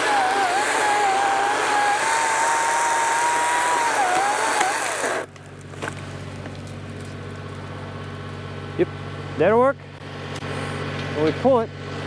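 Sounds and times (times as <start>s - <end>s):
chainsaw cutting: 0.0s - 7.1s
tractor engine idling: 5.2s - 12.0s.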